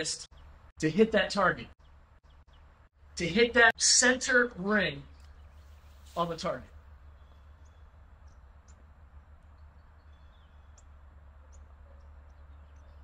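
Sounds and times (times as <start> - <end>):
steady low rumble: 4.4 - 13.0
faint bird chirps: 5.0 - 13.0.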